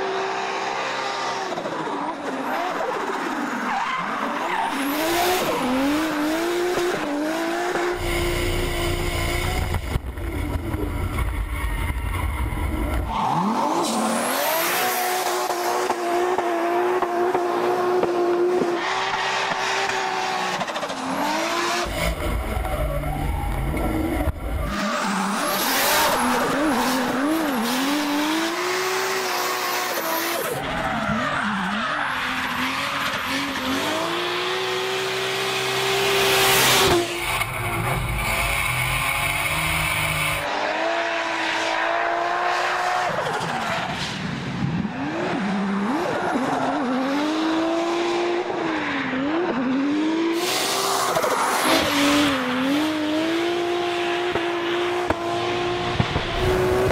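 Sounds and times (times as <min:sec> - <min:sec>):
car engine revving: 0:04.7 - 0:30.8, 0:45.0 - 0:56.9.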